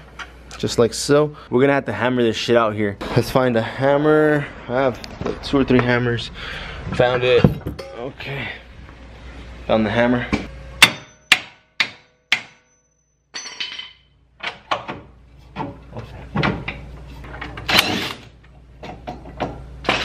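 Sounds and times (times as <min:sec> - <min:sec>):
dull metal knocks and clunks: 0:14.4 - 0:17.7.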